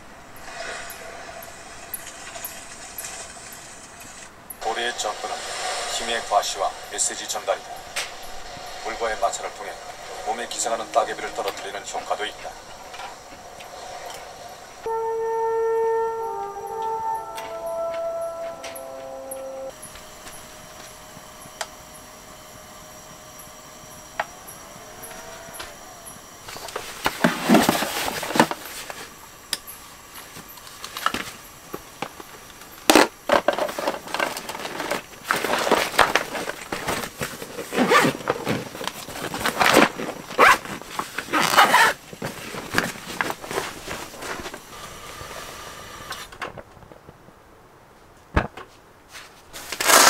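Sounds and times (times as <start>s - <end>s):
rustling and scraping of bag: 26.4s - 29.1s, 32.9s - 45.4s, 49.1s - 50.0s.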